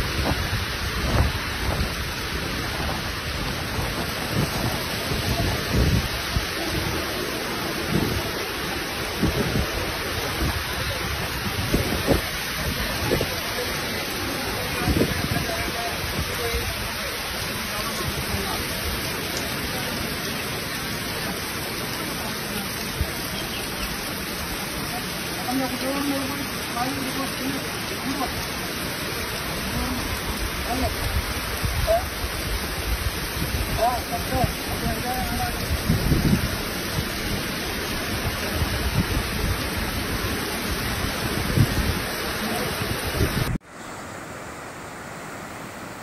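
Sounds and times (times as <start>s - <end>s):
wind buffeting microphone: 0.0s - 7.1s, 7.8s - 13.4s, 30.1s - 43.6s
rushing river: 0.0s - 46.0s.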